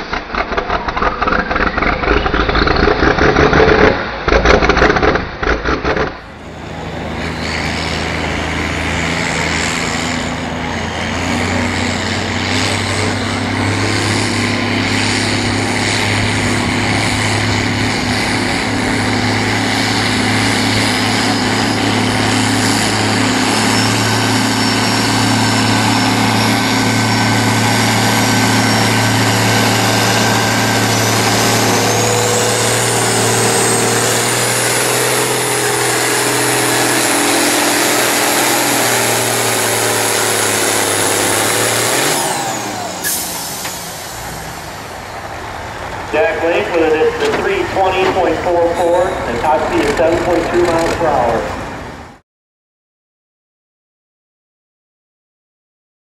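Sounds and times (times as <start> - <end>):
tractor diesel engine running: 0.0 - 52.2
high whine rising: 11.4 - 52.2.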